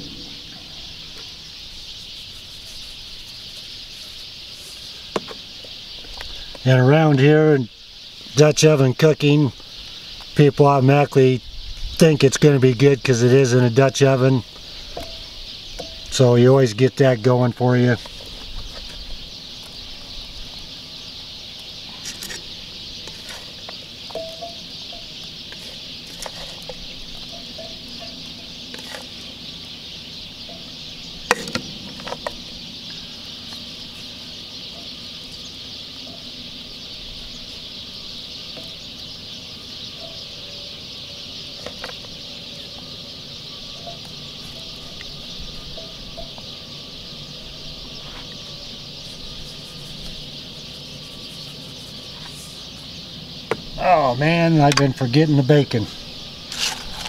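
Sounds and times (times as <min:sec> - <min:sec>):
faint bird calls: 0:00.0 - 0:57.0
insect chorus: 0:00.0 - 0:57.0.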